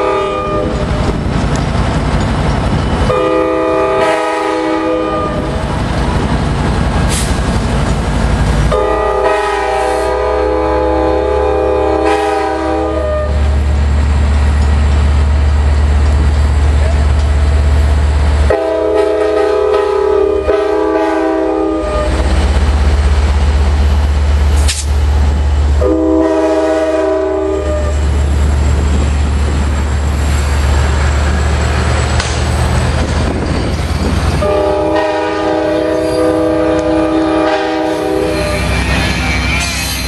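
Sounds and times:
locomotive air horn blasts: 0:00.0 - 0:00.9, 0:03.1 - 0:05.6, 0:08.7 - 0:13.5, 0:18.5 - 0:22.3, 0:25.8 - 0:28.0, 0:34.4 - 0:39.7
train cars rolling by: 0:00.0 - 0:40.0
diesel engine rumbling: 0:05.1 - 0:11.8, 0:13.2 - 0:19.4, 0:20.4 - 0:40.0
sharp click: 0:24.6 - 0:25.0, 0:32.2 - 0:32.5.

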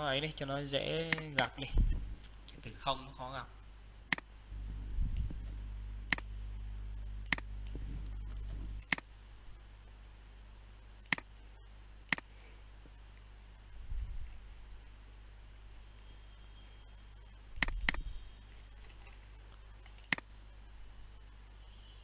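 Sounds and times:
low hum: 0:01.5 - 0:22.0
computer mouse and keyboard clicks: 0:19.8 - 0:20.3.

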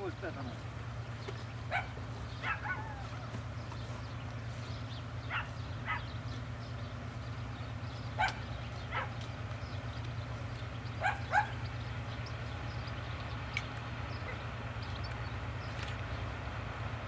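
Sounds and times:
distant diesel locomotive drone: 0:00.0 - 0:17.0
dog barking: 0:01.7 - 0:03.1, 0:05.3 - 0:06.1, 0:08.2 - 0:09.2, 0:11.0 - 0:11.6.

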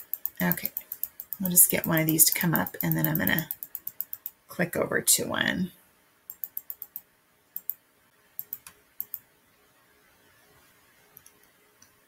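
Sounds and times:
computer mouse clicking: 0:00.0 - 0:04.4, 0:06.3 - 0:07.8, 0:08.4 - 0:09.2, 0:11.1 - 0:12.0.

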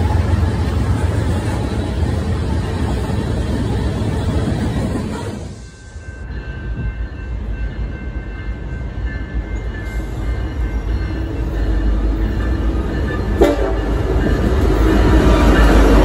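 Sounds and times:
diesel locomotive rumble: 0:00.0 - 0:16.0.

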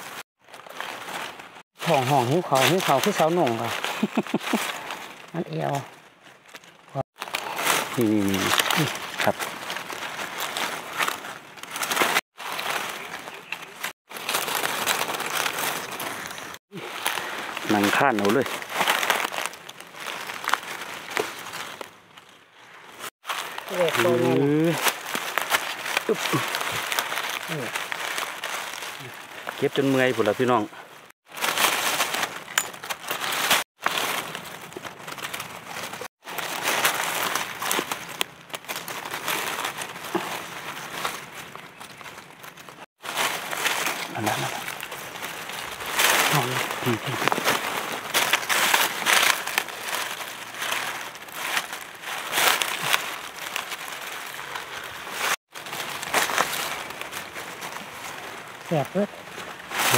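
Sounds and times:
dry leaves rustling and crackling: 0:00.0 - 0:59.9.

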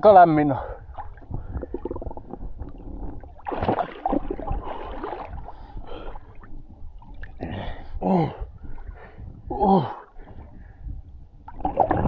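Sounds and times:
water splashing around swimmer: 0:03.4 - 0:06.3.

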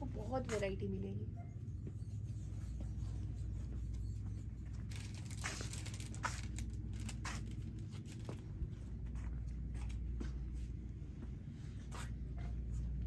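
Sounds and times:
steady low hum: 0:00.0 - 0:13.0
plastic wrapping crinkling: 0:04.8 - 0:08.4.

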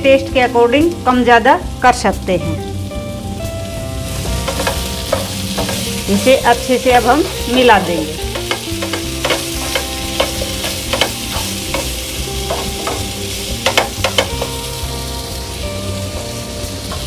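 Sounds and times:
potatoes sizzling: 0:00.0 - 0:17.0
wooden spatula scraping a pan: 0:04.1 - 0:14.6.

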